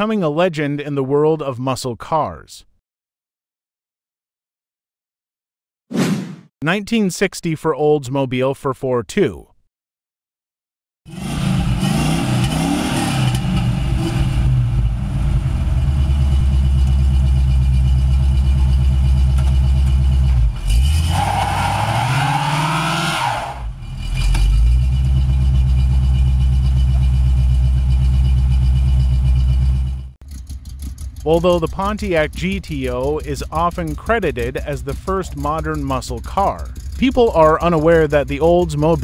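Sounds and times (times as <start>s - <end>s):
car engine revving hard: 11.1s - 16.4s, 20.3s - 25.0s
tyres spinning: 16.6s - 39.0s.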